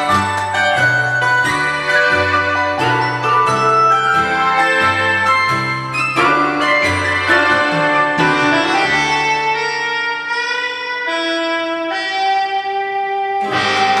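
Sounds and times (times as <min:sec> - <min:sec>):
instrumental ballad backing track: 0:00.0 - 0:14.0.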